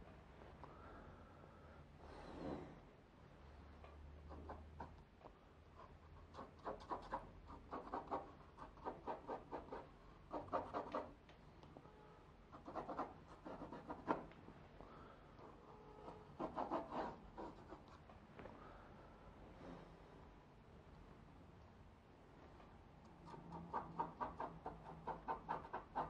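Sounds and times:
pencil scratching on paper: 0:05.7 - 0:11.2, 0:12.5 - 0:14.3, 0:15.4 - 0:18.1, 0:23.2 - 0:26.0.

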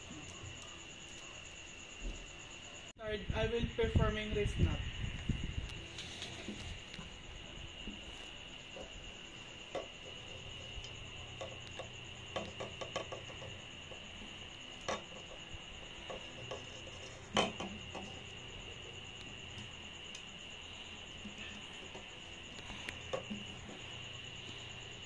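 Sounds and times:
faint high whine: 0:00.0 - 0:25.0
rope rubbing on metal pipe: 0:16.0 - 0:18.2.

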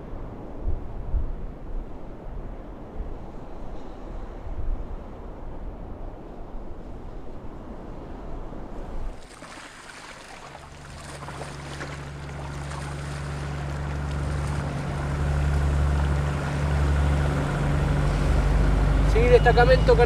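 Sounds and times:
wind: 0:00.0 - 0:20.0
water noise: 0:08.5 - 0:20.0
vehicle engine low hum: 0:10.4 - 0:20.0.

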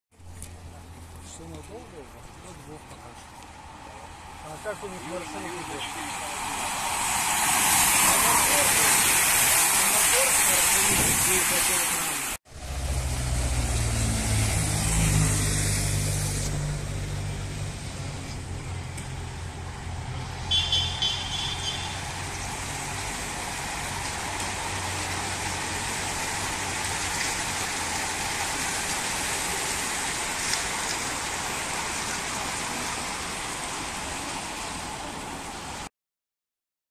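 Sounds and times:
bicycle tyres and freewheels whirring: 0:00.2 - 0:12.1.

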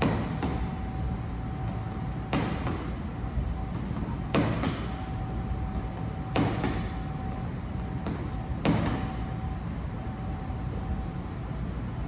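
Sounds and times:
boxing gloves punching a bag: 0:00.0 - 0:00.9, 0:01.6 - 0:03.0, 0:03.7 - 0:07.1, 0:08.0 - 0:09.2
steady hum: 0:00.0 - 0:12.0.

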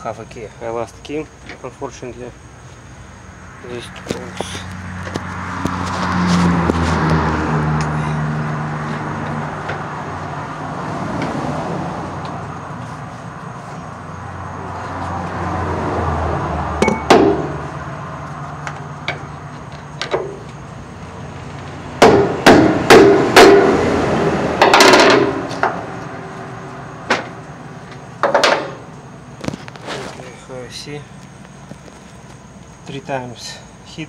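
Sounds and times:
hammer striking metal: 0:16.8 - 0:17.6, 0:22.0 - 0:23.8, 0:24.6 - 0:25.8
metal clatter: 0:24.6 - 0:25.8.

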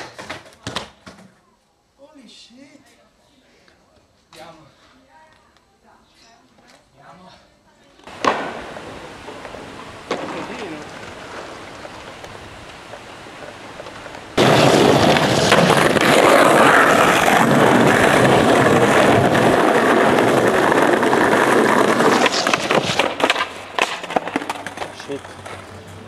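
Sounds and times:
skateboard wheels rolling on paving: 0:08.0 - 0:26.0.

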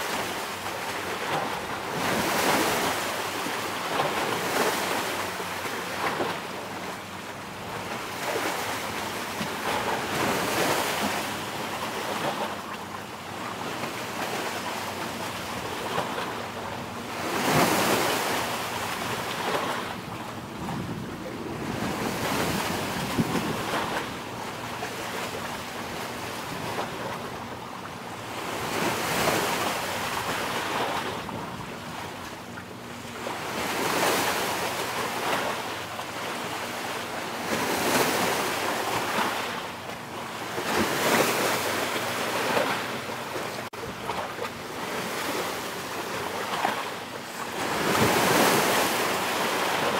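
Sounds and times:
sea waves washing in: 0:00.0 - 0:49.9
wind buffeting microphone: 0:19.4 - 0:24.6.

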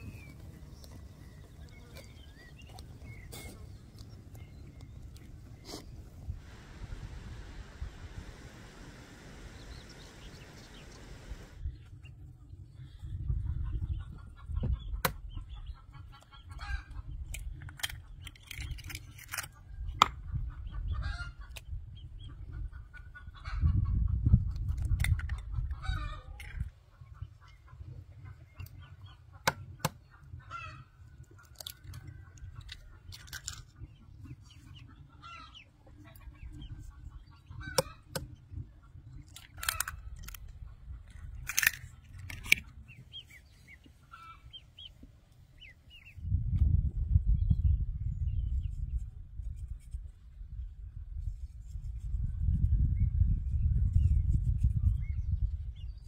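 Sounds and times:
low rumble: 0:06.2 - 0:11.9
chickens clucking: 0:13.2 - 0:18.2, 0:19.6 - 0:46.2.

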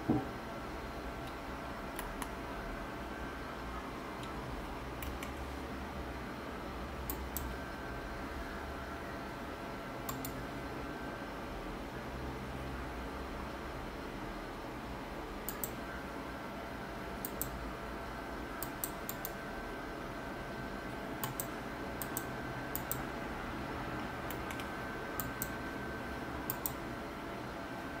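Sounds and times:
steady background hum: 0:00.0 - 0:28.0
computer mouse buttons clicking: 0:05.0 - 0:05.4, 0:10.1 - 0:10.4, 0:15.5 - 0:15.8, 0:17.2 - 0:17.6, 0:18.6 - 0:19.4, 0:21.2 - 0:23.0, 0:24.3 - 0:25.6, 0:26.5 - 0:26.8.

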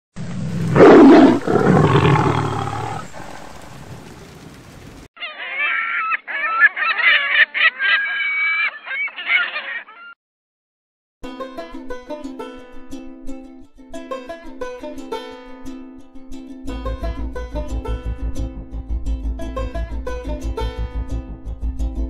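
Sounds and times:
lion roaring: 0:00.3 - 0:04.3
gull calling: 0:05.2 - 0:10.2.

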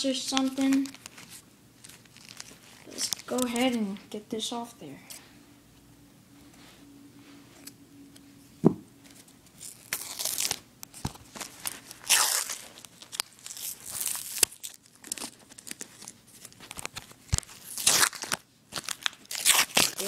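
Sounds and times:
paper band tearing and crinkling: 0:00.1 - 0:03.8, 0:09.5 - 0:20.0.

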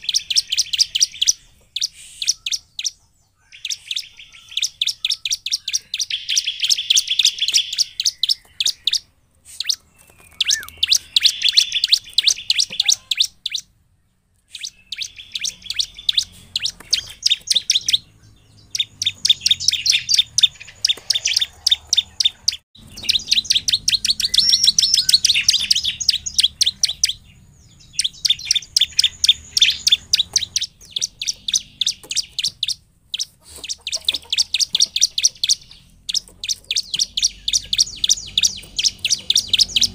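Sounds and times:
bird song of rapid chip notes: 0:00.0 - 0:39.9.

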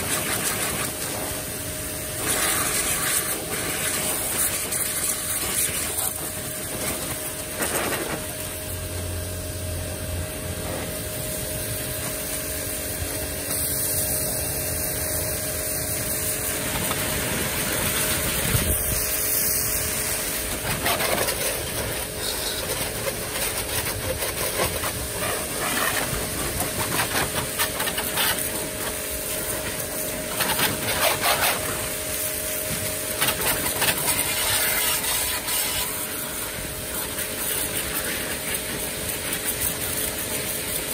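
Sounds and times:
pressure washer humming: 0:00.0 - 0:40.9
water jet hissing: 0:00.0 - 0:40.9.

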